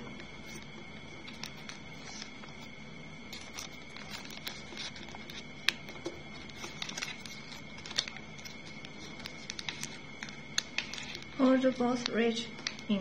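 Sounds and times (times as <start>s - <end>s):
paper crinkling as it is folded: 3.3s - 13.0s.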